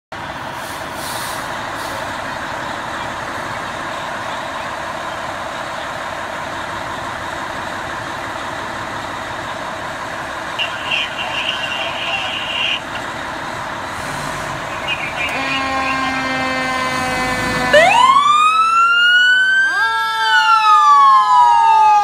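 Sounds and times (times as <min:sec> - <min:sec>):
diesel engine running: 0:00.1 - 0:19.3
air hissing: 0:00.6 - 0:02.1.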